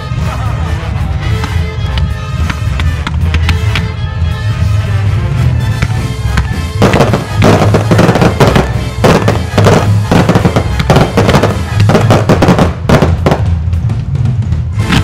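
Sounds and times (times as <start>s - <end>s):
loud music: 0.0s - 15.0s
fireworks bangs and crackles: 5.8s - 15.0s.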